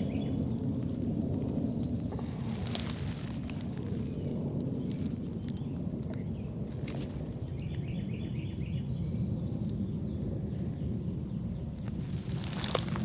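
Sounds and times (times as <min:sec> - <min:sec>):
microphone handling rumble: 0:00.0 - 0:08.1
insects droning: 0:00.0 - 0:13.0.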